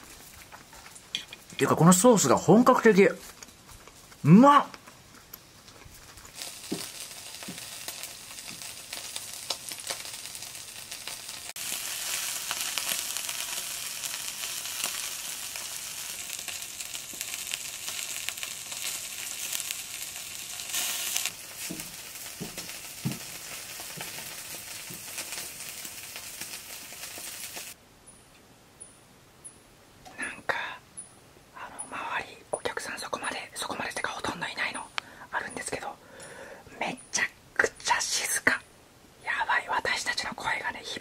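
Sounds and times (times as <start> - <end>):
meat sizzling on a grill: 6.2 - 27.8.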